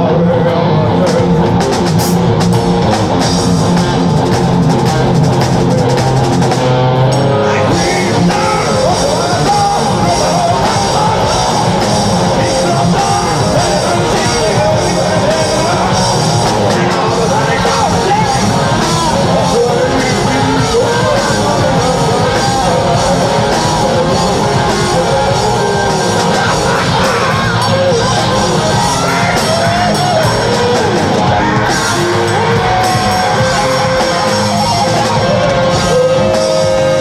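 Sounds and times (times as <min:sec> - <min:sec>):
bass guitar: 0:00.0 - 0:37.0
drum kit played hard: 0:00.0 - 0:37.0
electric guitars: 0:00.0 - 0:37.0.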